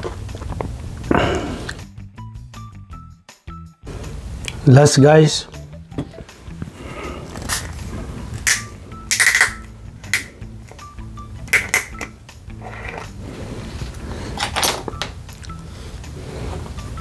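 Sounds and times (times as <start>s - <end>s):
biting and chewing: 0.0s - 1.8s
background music with beat: 1.1s - 4.6s, 5.5s - 12.6s.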